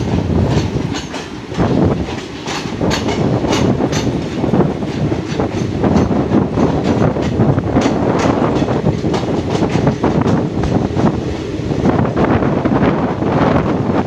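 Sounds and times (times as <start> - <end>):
wheels clicking over rail joints: 0.0 - 12.1
train coaches rumbling: 0.0 - 14.0.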